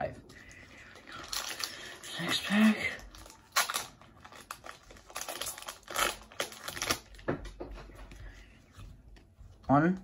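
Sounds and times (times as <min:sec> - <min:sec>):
foil wrapper crinkling: 0:00.8 - 0:07.2.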